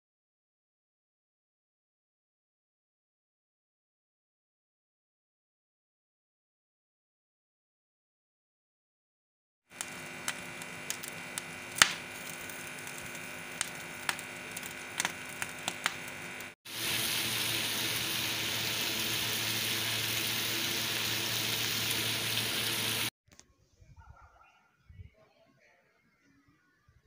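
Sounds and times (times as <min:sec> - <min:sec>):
sharp crackles: 0:09.7 - 0:16.9
chicken feet frying in a pan: 0:09.7 - 0:23.1
gas burner flame hissing: 0:09.7 - 0:23.1.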